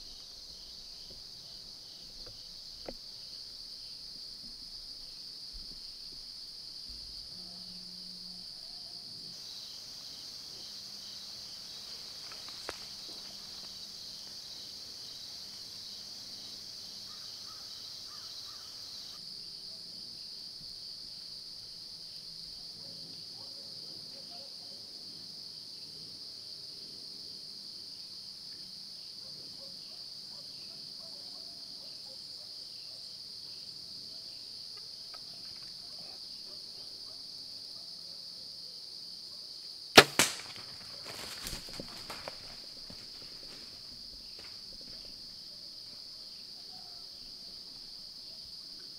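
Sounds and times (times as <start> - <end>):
crickets and katydids shrilling: 6.8 - 19.2, 40.0 - 45.6.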